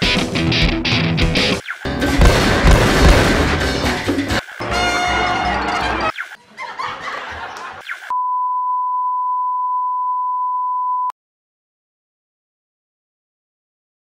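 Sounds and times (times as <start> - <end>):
cartoon music: 3.2 - 6.4.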